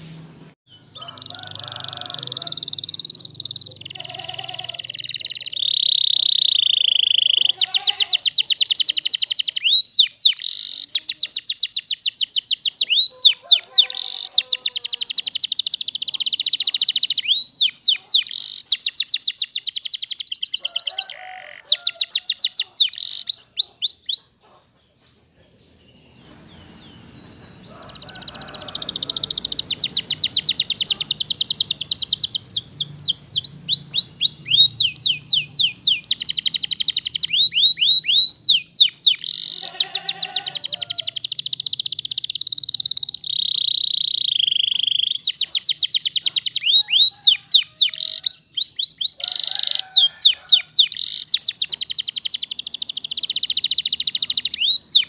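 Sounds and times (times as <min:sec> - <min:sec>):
canary singing trills: 0:00.7 - 0:55.0.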